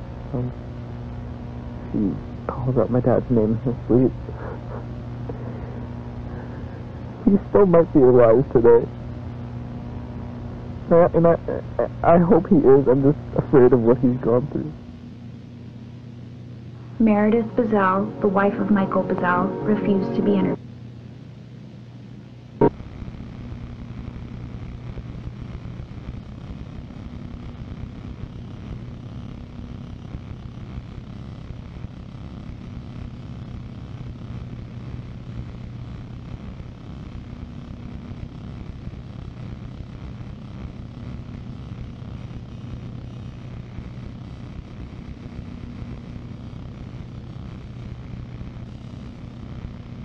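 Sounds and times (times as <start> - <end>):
hum: 0.0 - 50.0
low rumbling drone: 3.0 - 8.8.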